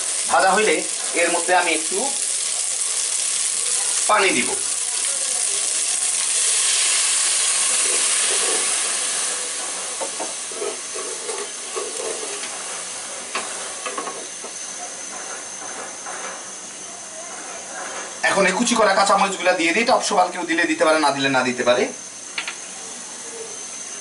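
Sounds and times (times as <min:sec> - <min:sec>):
water hissing in hot pot: 0:00.0 - 0:14.3
wooden spatula scraping pot: 0:10.4 - 0:12.5.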